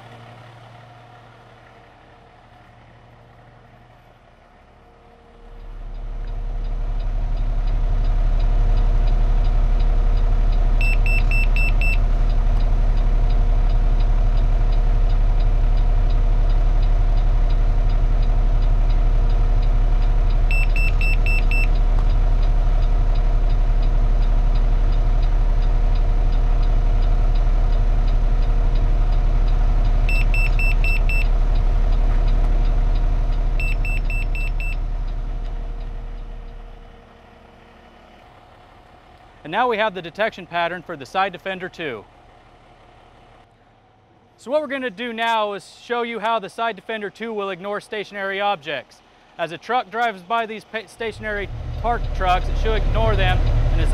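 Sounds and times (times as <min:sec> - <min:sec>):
truck engine idling: 0:00.0 - 0:53.9
rapid high-pitched beeps: 0:30.1 - 0:31.3, 0:33.6 - 0:34.8.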